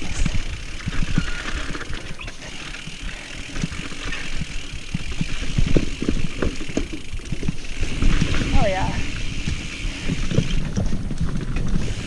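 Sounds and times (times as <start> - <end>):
mountain bike tyres rumbling: 0.0 - 12.0
bike frame knocks and rattles: 3.5 - 8.8.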